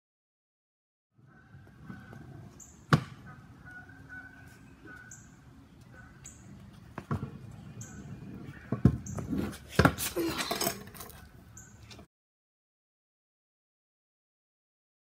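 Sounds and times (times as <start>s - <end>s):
kick scooter rattling on concrete: 5.8s - 12.1s.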